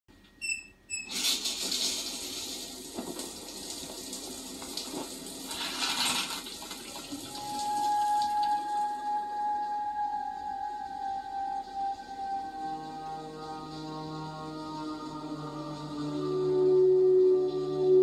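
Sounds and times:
shower spray hissing: 1.1 - 18.0
held musical note: 7.3 - 18.0.

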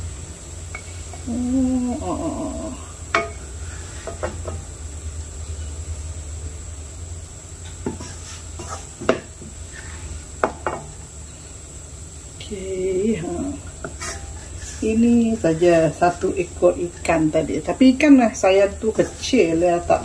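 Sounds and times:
steady low hum: 0.0 - 20.0
plastic spatula scraping a frying pan: 7.9 - 9.1, 13.8 - 15.8.

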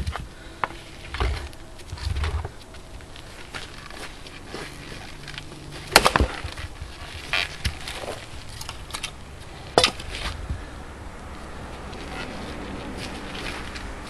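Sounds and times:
axe splitting log crack: 0.0 - 10.4.

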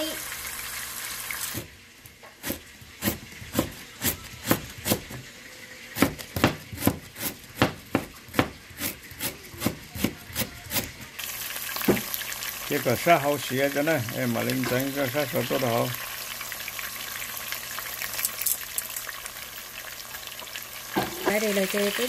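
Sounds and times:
frying hiss: 0.0 - 22.0.

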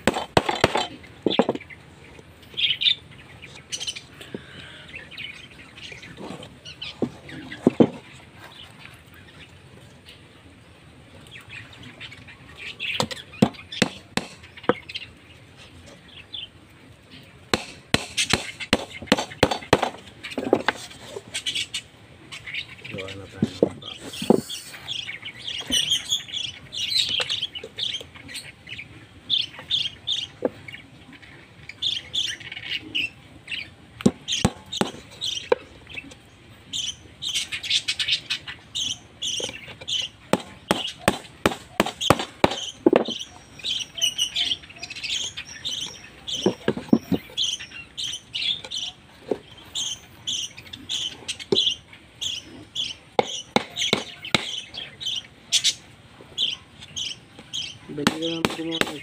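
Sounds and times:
hammer driving nails into wood: 0.0 - 1.6, 13.0 - 14.4, 17.6 - 20.0, 40.4 - 43.2
small birds chirping: 0.0 - 59.0.

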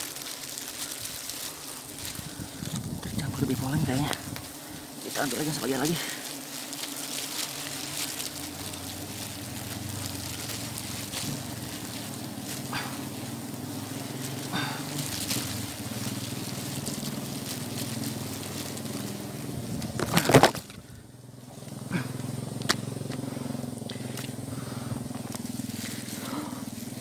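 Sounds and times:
bees buzzing: 0.0 - 27.0.

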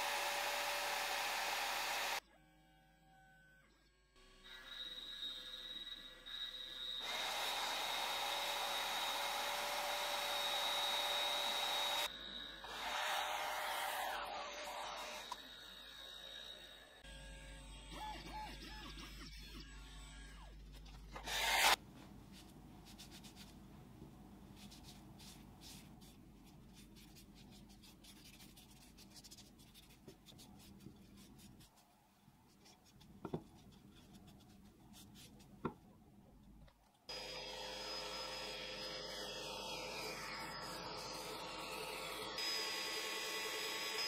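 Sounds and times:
drill press motor running: 0.0 - 2.2, 7.0 - 17.0.

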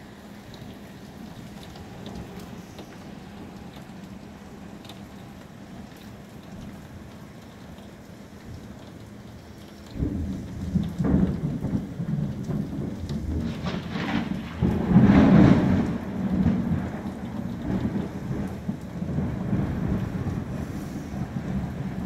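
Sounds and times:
steady rain: 0.0 - 22.0
thunder rolling: 10.0 - 22.0.

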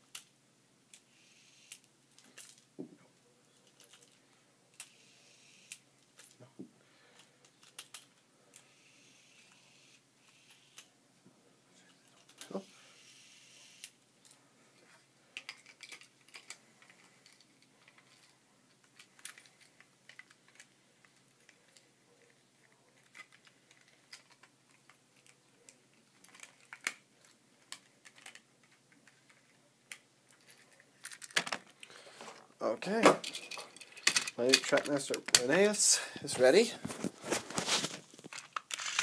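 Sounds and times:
small plastic parts clicking: 0.9 - 2.7, 3.6 - 6.4, 7.1 - 8.7, 12.0 - 12.5, 15.4 - 21.9, 23.0 - 32.0, 38.2 - 39.0.

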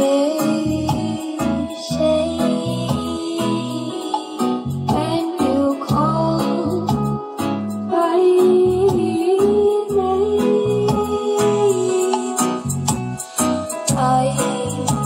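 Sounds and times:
sung melody: 0.0 - 15.0
repeating bass line: 0.6 - 7.8.

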